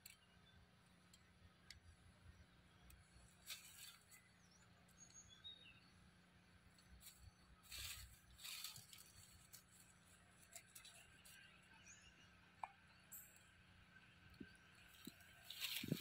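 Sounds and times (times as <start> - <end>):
faint bird chirps: 0.1 - 8.2
rustling of dry leaf litter: 3.3 - 4.2, 7.0 - 11.5, 14.9 - 16.0.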